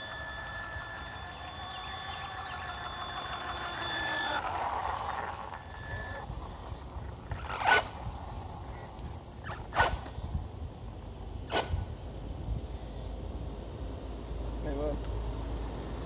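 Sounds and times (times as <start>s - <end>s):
electric motor whine: 0.0s - 10.1s
tyre noise on asphalt: 0.0s - 13.0s.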